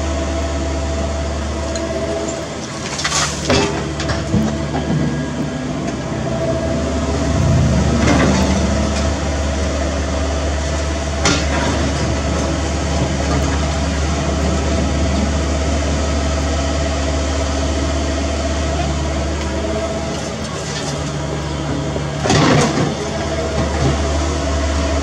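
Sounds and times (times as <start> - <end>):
excavator diesel engine running: 0.0 - 25.0
steady high tone: 0.0 - 25.0
debris clattering into steel truck bed: 2.6 - 5.2, 11.2 - 12.4, 20.1 - 24.0.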